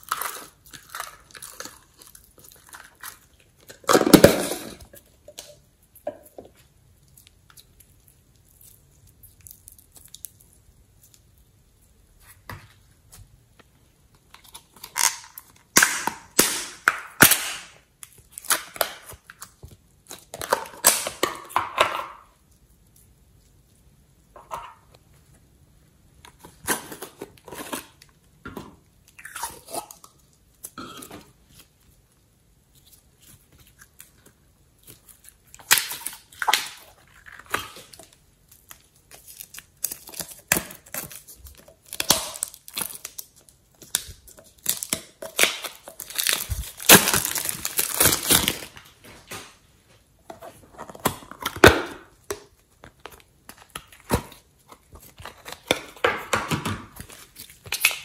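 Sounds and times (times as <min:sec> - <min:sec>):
cellophane crinkling and tearing: 0:00.0 - 0:05.6, 0:14.2 - 0:21.6, 0:32.7 - 0:49.4, 0:50.3 - 0:58.0.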